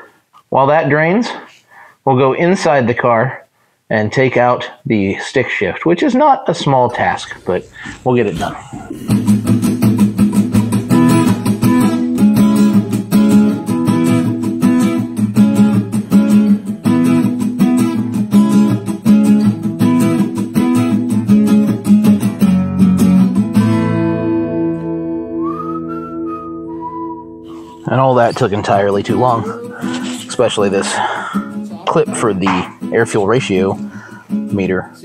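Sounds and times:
strummed guitar chords: 8.8s - 34.7s.

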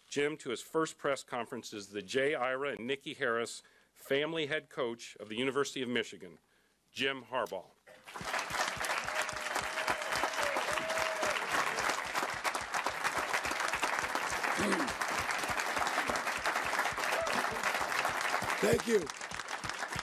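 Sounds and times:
people clapping: 7.9s - 20.0s.

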